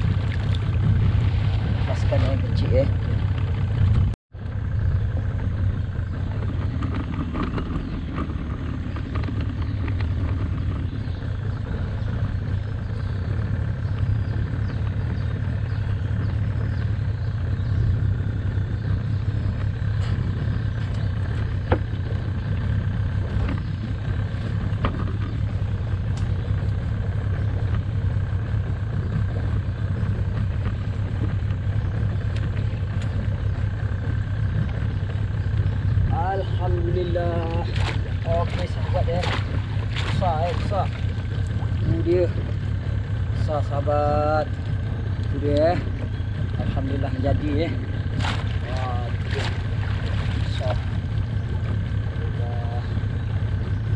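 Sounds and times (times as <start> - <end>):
outboard motor running: 0.0 - 53.9.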